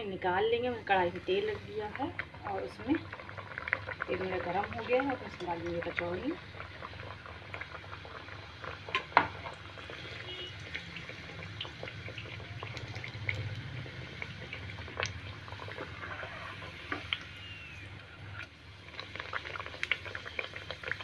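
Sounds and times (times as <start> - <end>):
pastry deep-frying in hot oil: 0.0 - 21.0.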